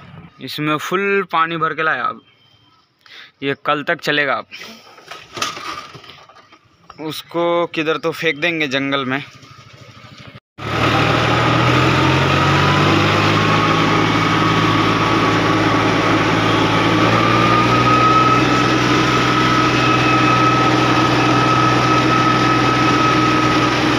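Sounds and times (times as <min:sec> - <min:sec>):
tractor diesel engine running: 0:09.3 - 0:23.9
thin steady whine: 0:12.0 - 0:23.9.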